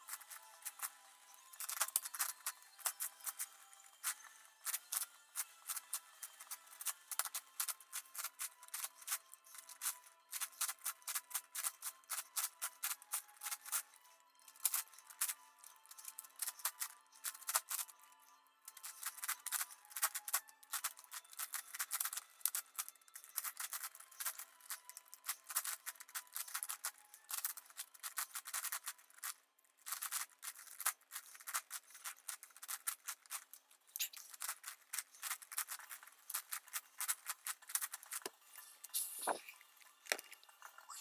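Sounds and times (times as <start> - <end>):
puzzle cube clicking: 4.6 - 13.8, 18.7 - 40.3.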